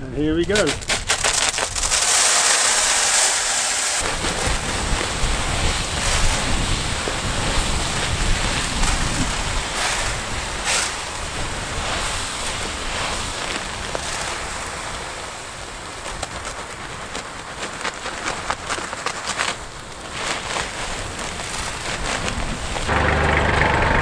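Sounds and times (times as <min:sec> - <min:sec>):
pellets pouring into plastic hopper: 0:00.4 - 0:22.9
wind buffeting microphone: 0:04.0 - 0:18.8, 0:19.5 - 0:22.9.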